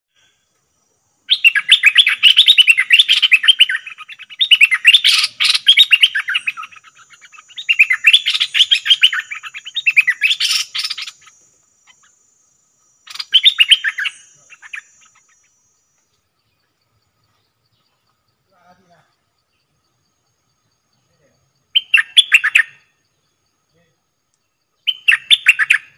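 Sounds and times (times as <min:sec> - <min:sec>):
songbird singing rapid trills: 0:00.1 - 0:25.9.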